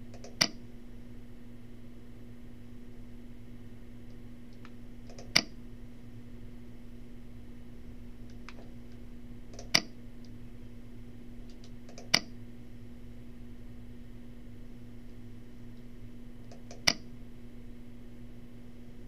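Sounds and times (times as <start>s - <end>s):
low electrical hum: 0.0s - 19.0s
computer mouse clicks: 0.1s - 0.6s, 4.5s - 5.6s, 8.3s - 10.4s, 11.4s - 12.3s, 16.5s - 17.0s.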